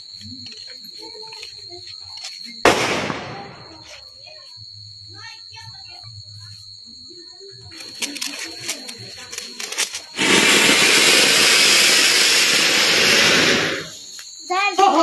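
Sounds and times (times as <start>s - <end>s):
firework fountain hissing: 8.0s - 14.2s.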